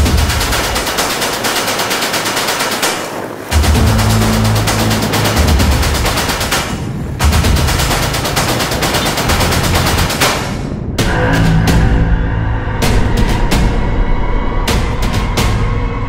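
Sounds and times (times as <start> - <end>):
sharp percussive hits: 0.0 - 11.2
low bass notes: 3.5 - 10.2.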